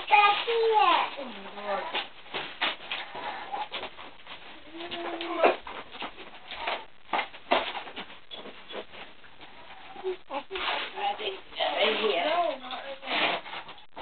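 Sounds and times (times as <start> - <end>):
packing tape and cardboard tearing: 13.0 - 13.9.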